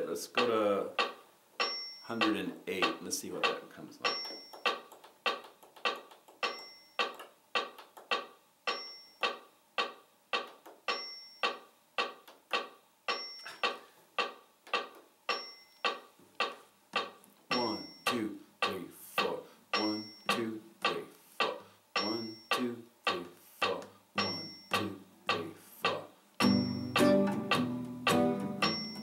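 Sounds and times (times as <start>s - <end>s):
metronome ticking: 0.0s - 29.0s
accented metronome beep: 0.3s - 29.0s
acoustic guitar strumming: 26.4s - 29.0s.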